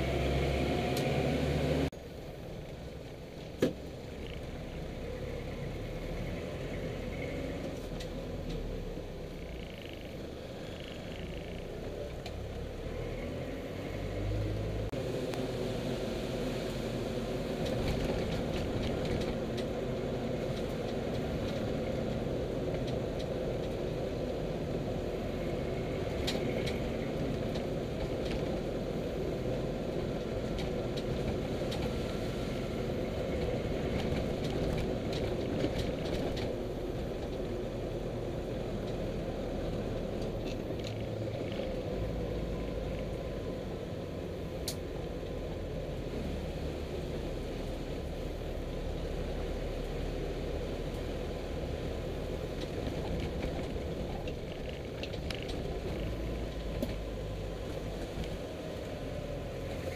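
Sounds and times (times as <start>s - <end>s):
road noise: 0.0s - 59.9s
light clicks and rattles: 52.5s - 57.2s.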